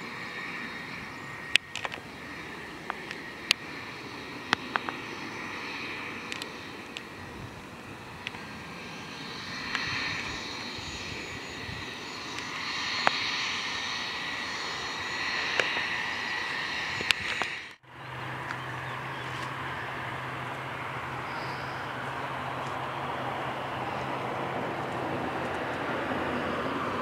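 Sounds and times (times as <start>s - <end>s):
jet engines hissing and whining: 0.0s - 27.0s
low drone of aircraft engines: 0.0s - 27.0s
tripod clicks: 1.5s - 2.0s, 17.0s - 17.8s.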